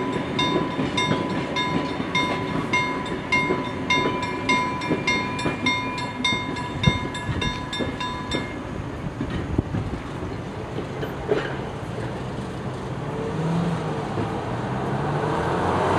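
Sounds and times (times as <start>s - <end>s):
level-crossing warning bell: 0.0s - 8.9s
train coaches rumbling: 0.0s - 15.9s.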